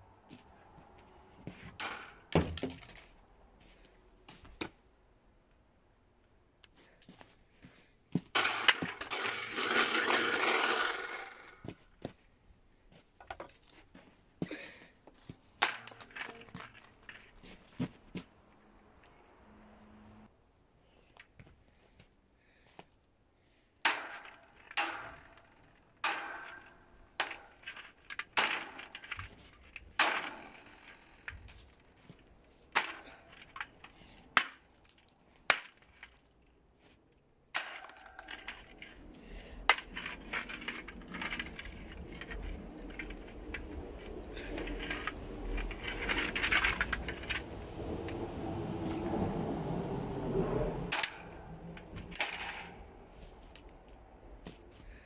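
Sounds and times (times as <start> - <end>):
sharp knocks and cracks: 1.5 - 3.1, 8.2 - 11.8, 15.5 - 17.2, 23.8 - 36.3, 37.6 - 47.6, 50.9 - 52.9.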